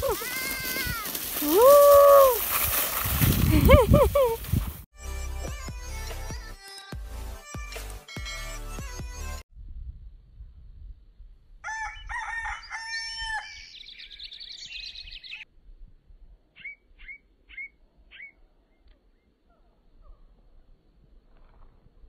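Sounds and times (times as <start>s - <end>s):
rooster crowing: 11.6s - 13.7s
small bird chirping: 13.5s - 15.4s, 16.6s - 20.2s.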